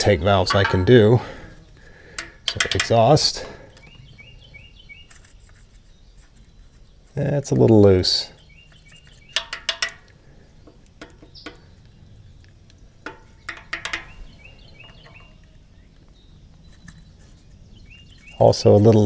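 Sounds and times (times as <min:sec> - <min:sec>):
small metallic clicks: 0:02.1 - 0:03.9, 0:08.7 - 0:14.2.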